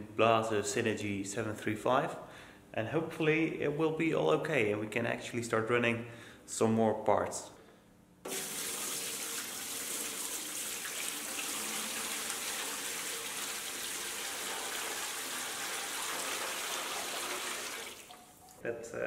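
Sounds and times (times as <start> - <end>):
water pouring into tank: 8.3 - 18.6.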